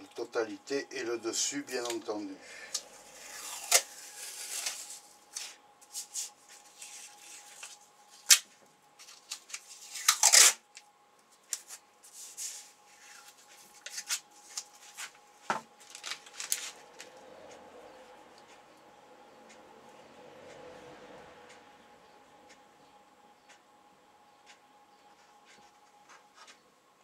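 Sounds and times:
faint steady hum: 0:00.0 - 0:27.0
adhesive tape pulled off roll: 0:02.7 - 0:08.4, 0:09.0 - 0:10.6
plastic blister pack crinkling: 0:02.7 - 0:10.8, 0:15.8 - 0:17.1.

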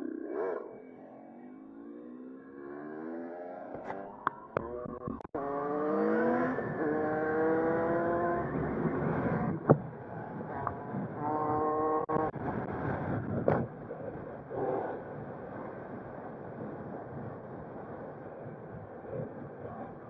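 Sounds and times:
motorcycle engine accelerating: 0:01.3 - 0:15.8.

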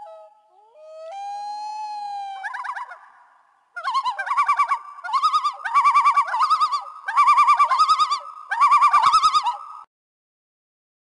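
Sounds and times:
bird-like warbling trills: 0:02.4 - 0:09.8.

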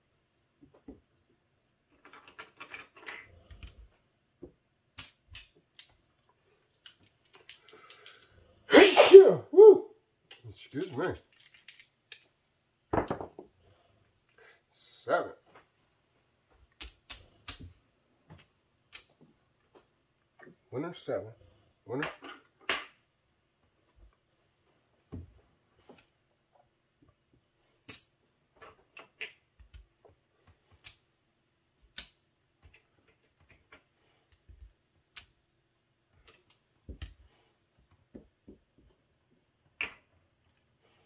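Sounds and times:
casino chips clicking: 0:06.8 - 0:08.3, 0:11.3 - 0:12.2.

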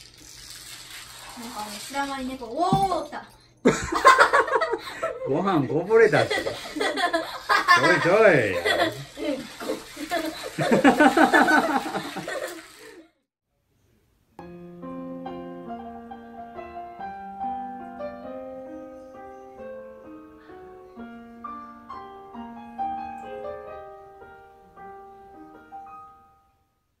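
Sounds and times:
solo piano music: 0:14.4 - 0:26.8.

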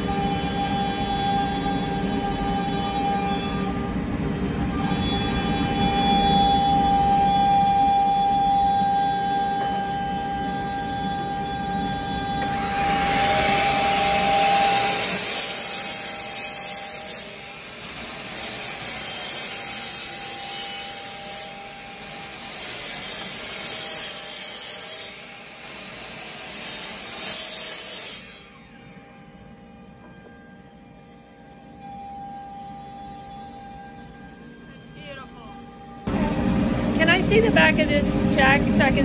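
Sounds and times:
miter saw motor whine: 0:00.0 - 0:22.6
saw cutting through wood: 0:11.1 - 0:29.2.

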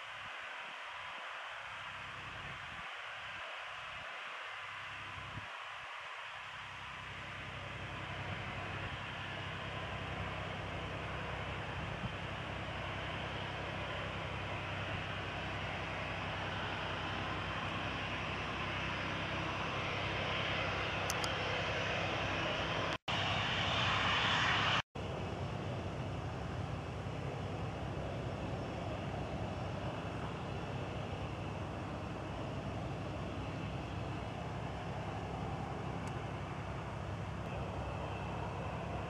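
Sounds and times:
jet engines running: 0:00.0 - 0:39.0.

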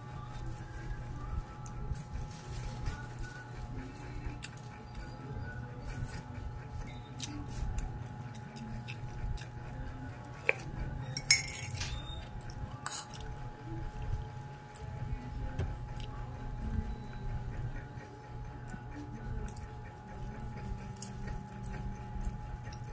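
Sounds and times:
steady low hum: 0:00.0 - 0:22.9
cutlery clinking on a plate: 0:11.2 - 0:12.1, 0:12.8 - 0:13.2.

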